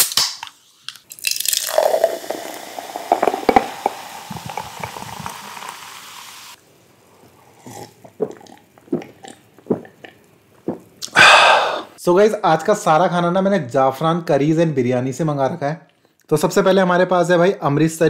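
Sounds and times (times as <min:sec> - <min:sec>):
soda pouring fizzing: 0:01.1 - 0:10.1
mouth and swallowing sounds: 0:01.6 - 0:05.8, 0:07.2 - 0:12.0.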